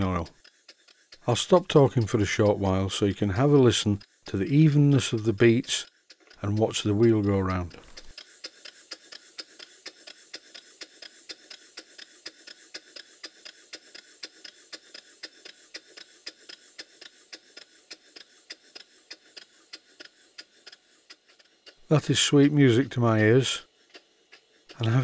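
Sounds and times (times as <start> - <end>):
model steam engine exhaust beats: 0.0 - 25.0.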